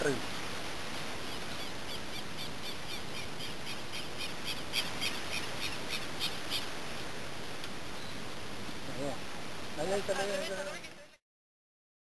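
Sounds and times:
steady hiss: 0.0 - 11.2
short high chirping calls: 1.2 - 6.7.

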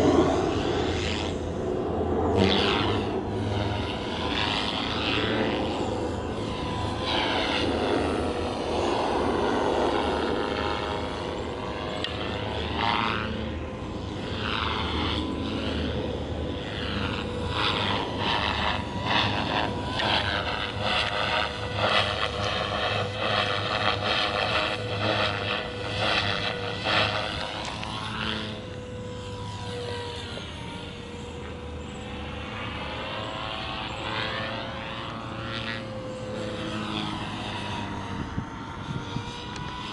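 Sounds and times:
rc helicopter motor whine: 0.0 - 39.9.

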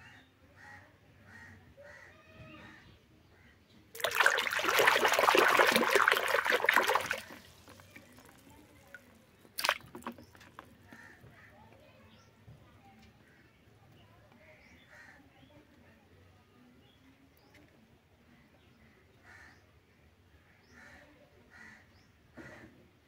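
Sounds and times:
hand splashing water in basin: 4.0 - 10.6.

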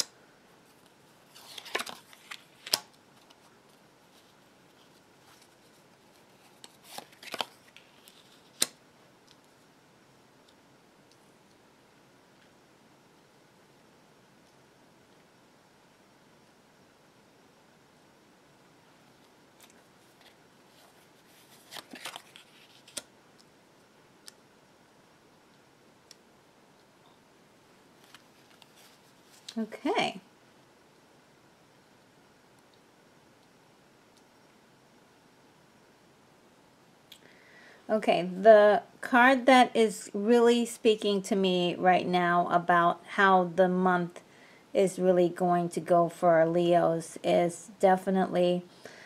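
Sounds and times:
faint room hiss: 0.0 - 49.0
cards sliding and clicking: 1.3 - 3.4.

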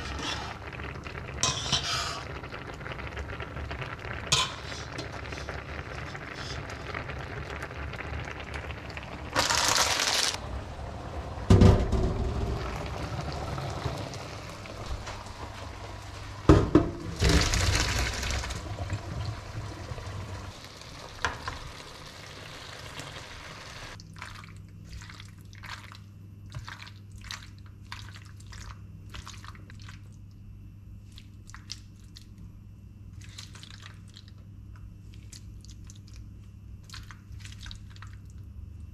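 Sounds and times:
water pouring into a sink: 5.2 - 10.4, 12.2 - 26.0.

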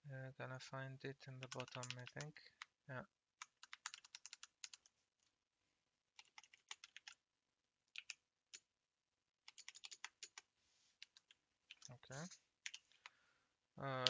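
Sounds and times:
computer keyboard typing: 1.4 - 2.7, 3.4 - 4.9, 6.1 - 7.2, 7.9 - 8.7, 9.4 - 13.1.

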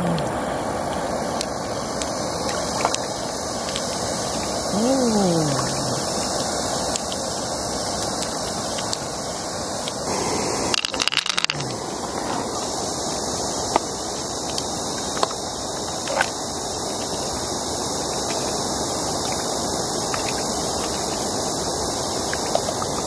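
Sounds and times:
steady hiss: 0.0 - 23.0
pearls clicking against shell: 10.8 - 11.6.

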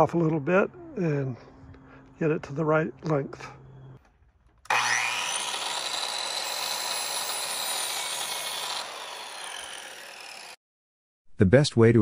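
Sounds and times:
miter saw cutting wood: 4.7 - 10.6.

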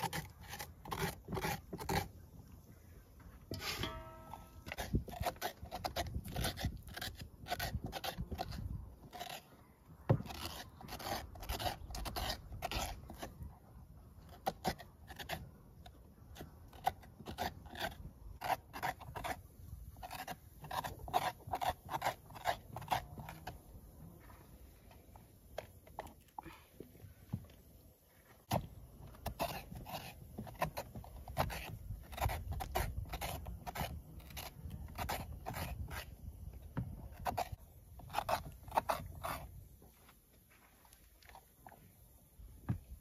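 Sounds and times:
spoon scraping a pumpkin: 0.0 - 2.5, 3.4 - 13.5, 14.2 - 26.4, 28.4 - 39.8.

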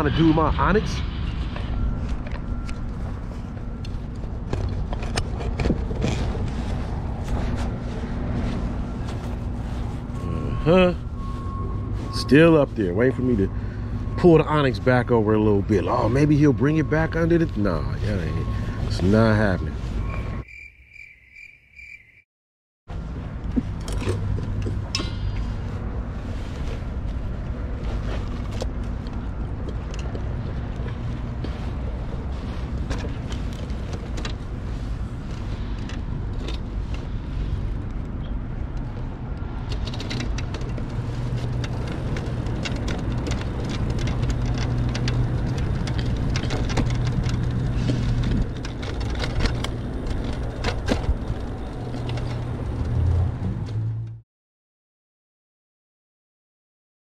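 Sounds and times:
vehicle running with low hum: 0.0 - 20.5, 22.9 - 54.2
sharp clicks and rattles: 37.8 - 53.4.

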